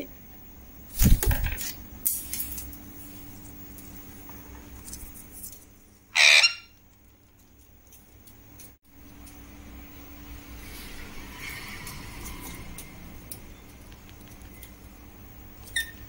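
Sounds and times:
parakeet squawk: 6.1s - 6.8s.

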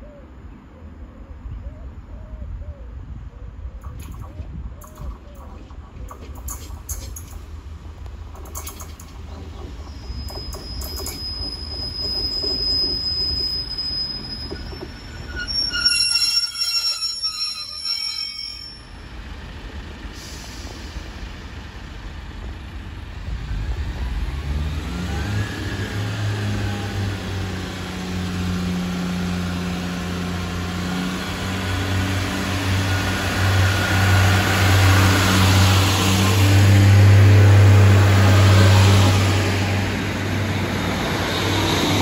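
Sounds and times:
train wheels and engines rumbling: 0.0s - 42.0s
brake and wheel squeal: 8.5s - 19.1s.

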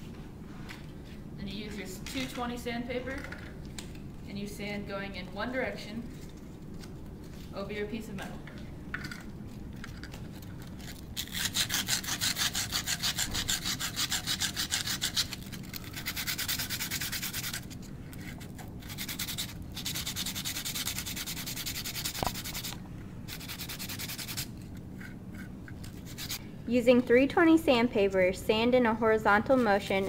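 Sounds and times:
sandpaper rasping on metal: 11.2s - 17.7s, 18.8s - 22.7s, 23.3s - 24.5s, 26.0s - 26.4s.

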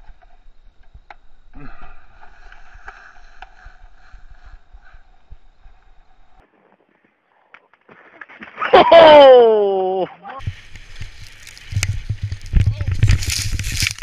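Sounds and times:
skis scraping over snow: 10.4s - 14.0s
wind buffeting microphone: 10.4s - 14.0s.

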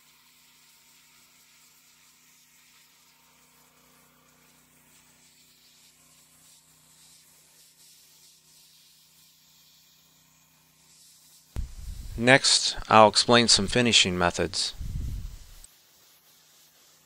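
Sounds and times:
pressure washer spray hiss: 4.5s - 17.0s
low hum: 11.6s - 12.8s, 14.6s - 15.6s.

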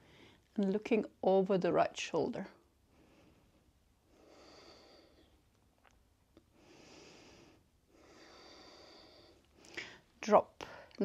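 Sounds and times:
person breathing softly: 0.0s - 0.6s, 2.9s - 5.5s, 6.5s - 11.0s.

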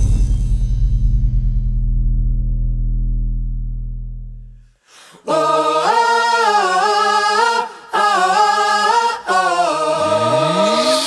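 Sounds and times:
unaccompanied singing: 5.2s - 11.0s.

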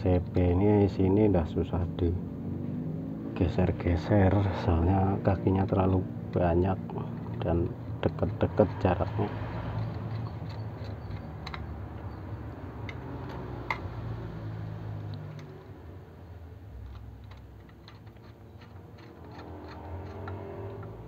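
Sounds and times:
screwdriver clicking on metal: 16.8s - 21.0s.

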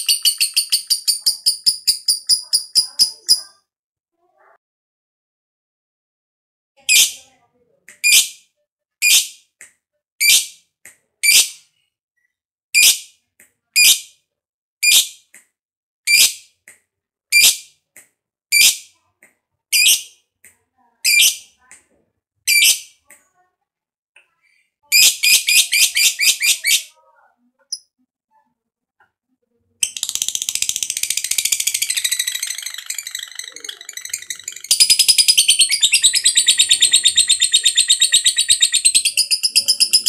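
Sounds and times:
lovebird chattering trill: 0.0s - 3.5s, 29.8s - 40.0s
lovebird chirping: 0.0s - 3.6s, 29.8s - 40.0s.

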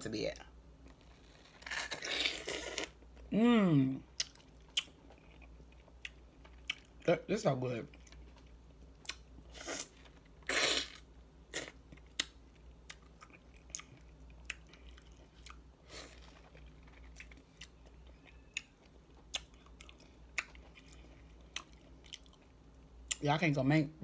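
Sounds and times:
wet chewing and lip smacks: 4.2s - 7.0s, 7.9s - 9.3s, 11.9s - 15.7s, 16.3s - 23.2s.

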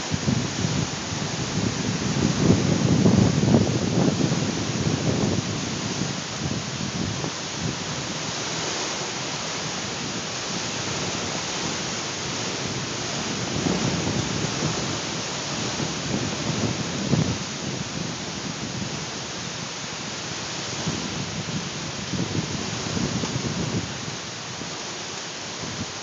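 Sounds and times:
strong wind rushing hiss: 0.0s - 26.0s
wind gusts buffeting microphone: 0.0s - 26.0s.

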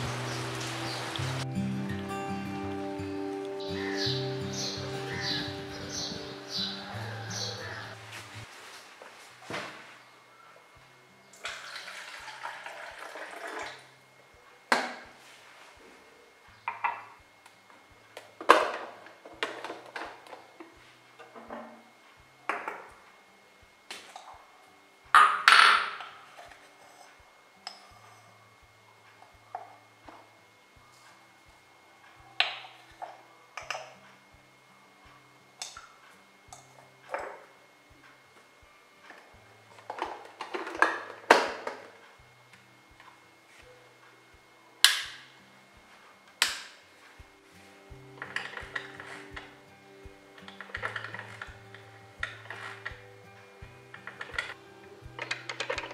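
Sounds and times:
soft background music: 0.0s - 55.9s
coffee maker plastic clatter: 39.9s - 41.9s.

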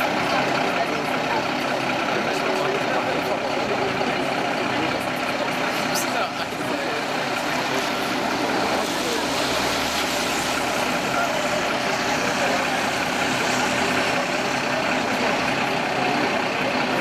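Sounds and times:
diesel truck engine running: 0.0s - 17.0s.

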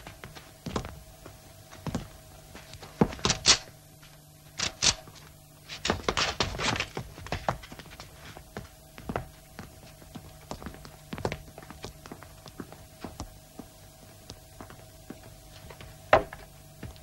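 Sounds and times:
steady low hum: 0.0s - 17.0s
thuds and knocks on hard surface: 16.1s - 16.5s.

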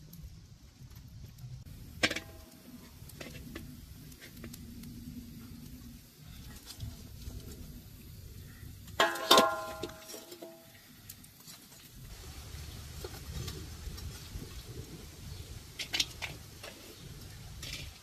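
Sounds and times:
metal cookware clinking: 9.0s - 10.8s.

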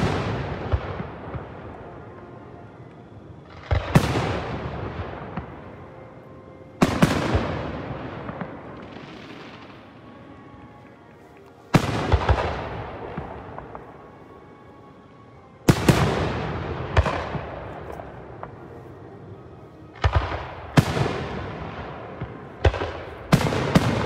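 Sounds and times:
fireworks crackling: 0.0s - 14.3s, 15.6s - 24.0s
fireworks booming: 20.0s - 24.0s.

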